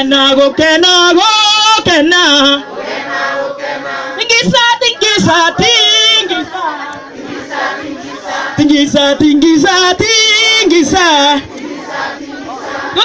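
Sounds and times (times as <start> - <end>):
lead singer over microphone: 0.0 - 2.7, 3.8 - 13.0
group of voices singing: 0.0 - 13.0.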